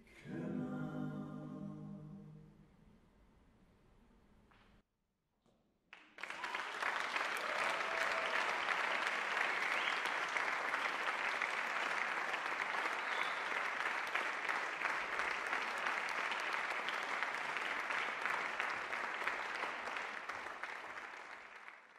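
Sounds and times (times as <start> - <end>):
audience applauding: 6.0 - 21.9.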